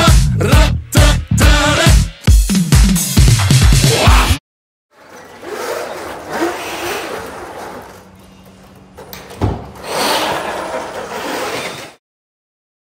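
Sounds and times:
robot motors whirring: 0:05.0 - 0:08.2, 0:09.8 - 0:12.0.

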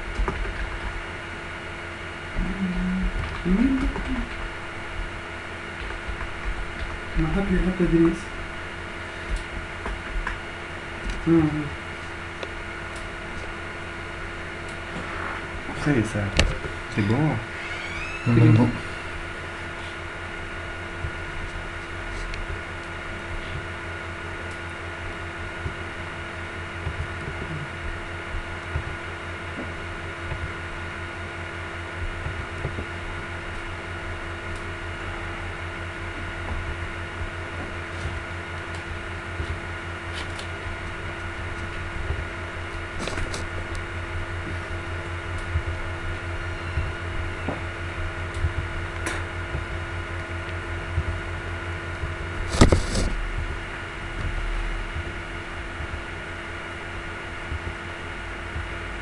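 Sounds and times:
fan-like machine hum: 0:00.0 - 0:59.0.

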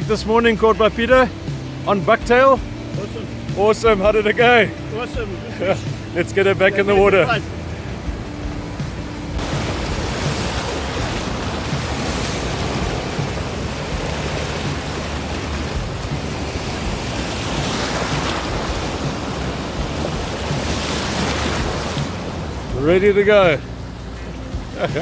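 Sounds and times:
small waves breaking: 0:00.0 - 0:25.0
wind rumbling on microphone: 0:07.4 - 0:23.0.

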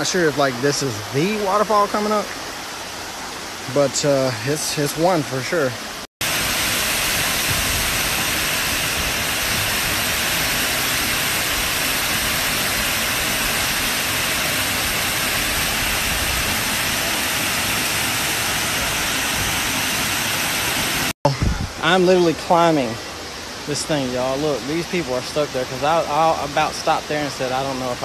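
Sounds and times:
waterfall rushing: 0:00.0 - 0:28.0.

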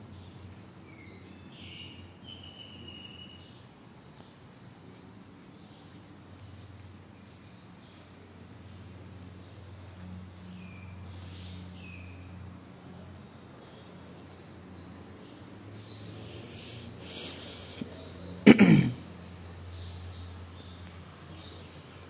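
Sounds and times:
faint bird chirps: 0:00.2 - 0:04.8
loud burst of breath: 0:16.1 - 0:17.9.

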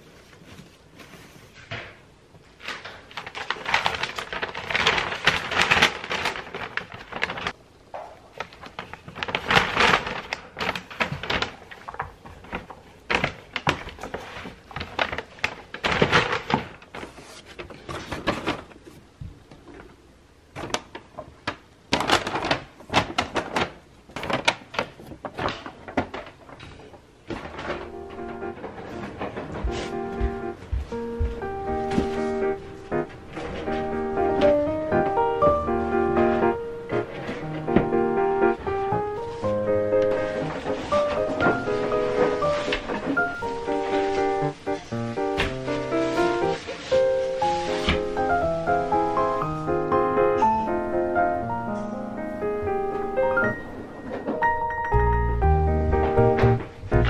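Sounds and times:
paper bag rustling: 0:00.0 - 0:19.2, 0:20.5 - 0:57.0
fabric box rustling: 0:27.3 - 0:49.7.

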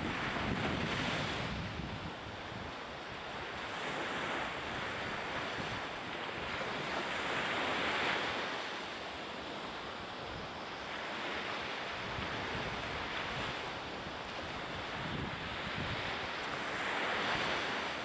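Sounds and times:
wind buffeting microphone: 0:00.0 - 0:08.4, 0:11.9 - 0:17.9.

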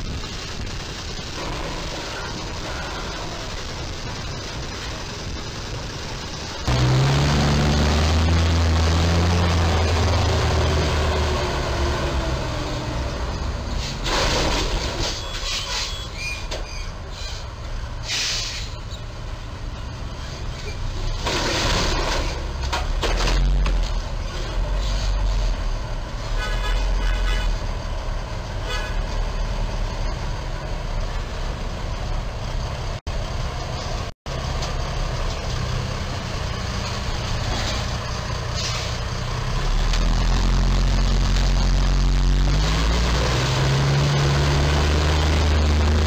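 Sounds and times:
truck diesel engine running: 0:00.0 - 0:15.0, 0:18.8 - 0:46.0
street traffic: 0:00.0 - 0:46.0
truck horn toots: 0:26.2 - 0:27.7, 0:28.6 - 0:29.1.

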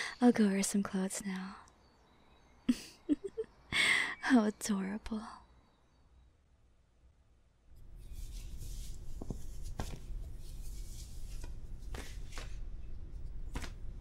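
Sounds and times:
clothes rustling: 0:07.8 - 0:14.0.

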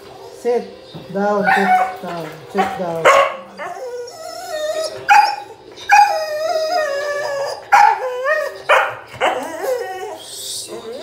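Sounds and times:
dog whining howls: 0:03.5 - 0:11.0.

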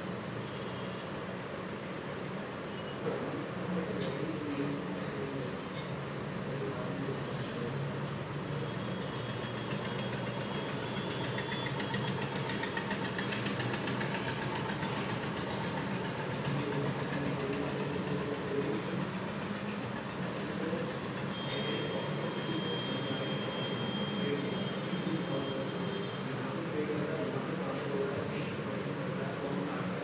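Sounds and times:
fast regular ticking: 0:09.0 - 0:21.4.

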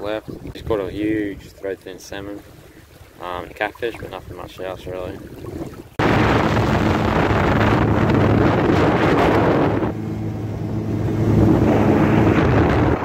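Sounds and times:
wind and water rushing: 0:00.0 - 0:13.0
boat motor running: 0:05.5 - 0:13.0.

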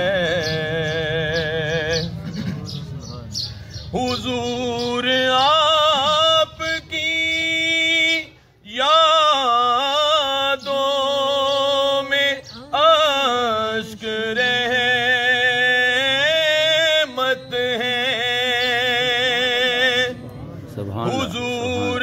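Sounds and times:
man singing unaccompanied: 0:00.0 - 0:22.0.

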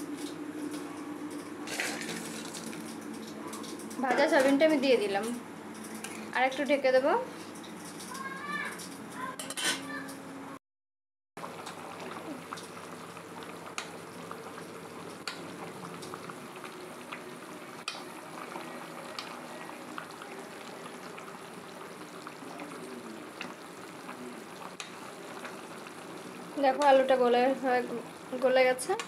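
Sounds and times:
curry bubbling in a pan: 0:11.4 - 0:29.0.

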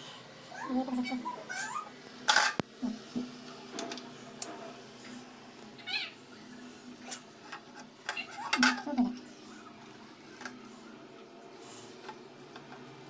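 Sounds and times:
stove scraping on counter: 0:02.3 - 0:02.6.

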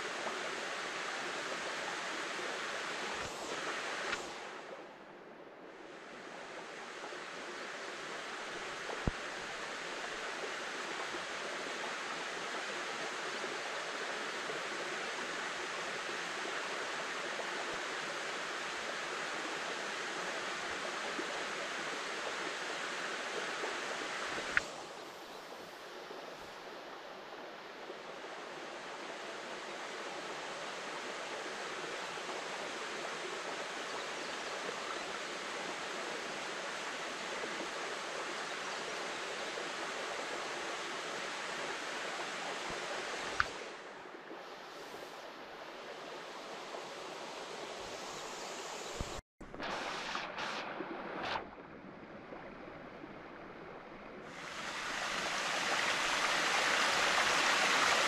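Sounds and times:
river babbling over stones: 0:49.5 - 0:58.0.

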